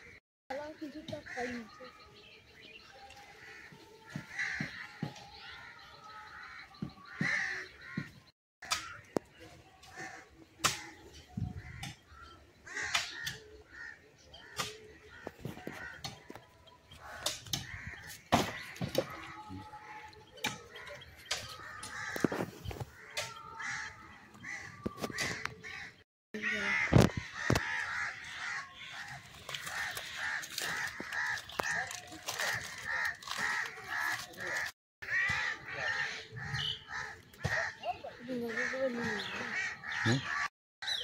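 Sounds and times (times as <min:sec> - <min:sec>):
plastic packet crackling: 0:29.1 - 0:34.6.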